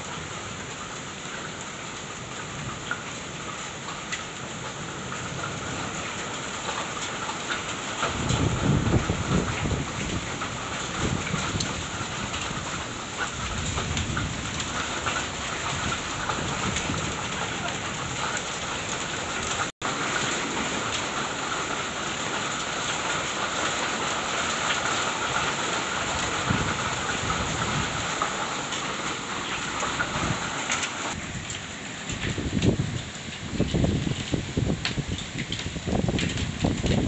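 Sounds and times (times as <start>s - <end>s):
heavy rain hissing: 7.7s - 37.0s.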